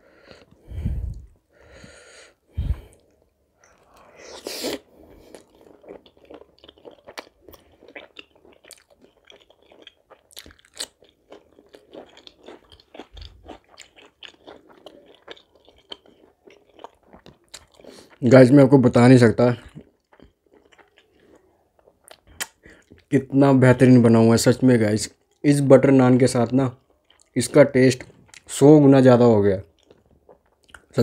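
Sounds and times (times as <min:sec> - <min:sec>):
close-miked chewing: 0:02.7 - 0:18.3, 0:19.6 - 0:23.1, 0:26.7 - 0:28.5, 0:29.6 - 0:31.0.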